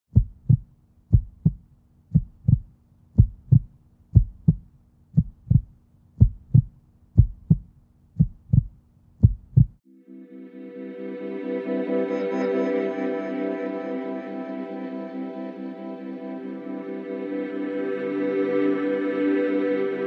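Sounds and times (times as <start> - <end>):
slow heartbeat: 0.1 - 9.8
soft ambient music: 9.9 - 20.0.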